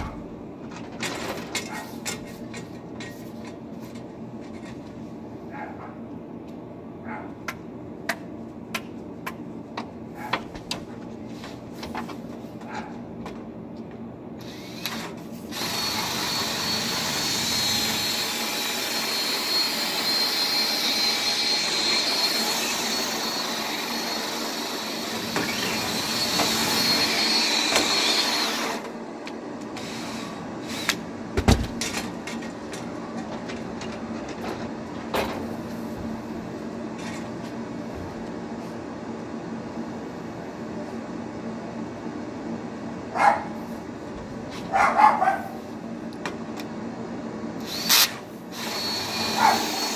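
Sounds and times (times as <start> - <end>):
cordless drill whining: 14.4 - 28.9, 29.8 - 31.0, 47.6 - 49.9
knocks and sharp thump: 31.4 - 31.9.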